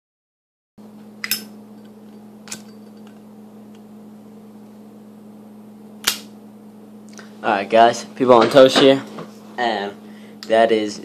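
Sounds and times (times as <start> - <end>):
steady low hum: 0.8 - 11.0
lighter metal lid clinking: 1.2 - 3.2.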